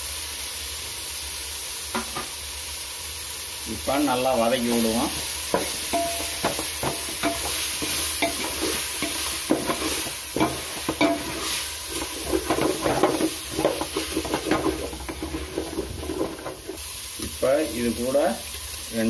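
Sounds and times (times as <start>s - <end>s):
frying oil sizzling: 0.0s - 19.0s
spatula scraping in metal pot: 5.5s - 16.8s.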